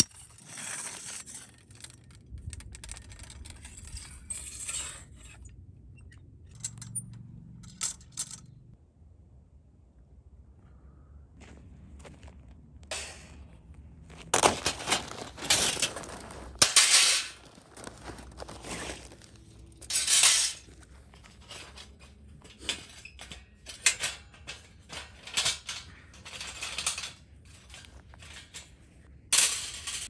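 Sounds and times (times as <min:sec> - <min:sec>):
rustling and crunching: 0:12.0 - 0:30.0.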